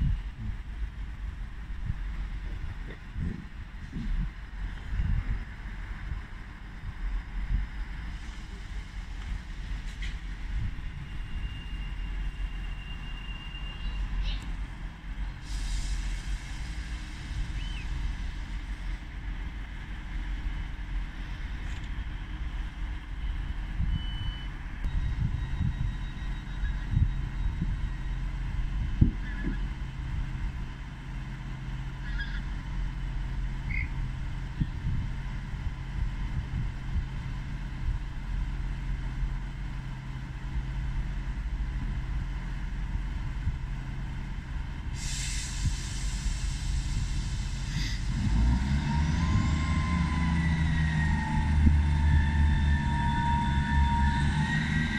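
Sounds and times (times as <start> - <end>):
diesel train engine idling: 0.0 - 54.9
short high beep: 23.8 - 28.0.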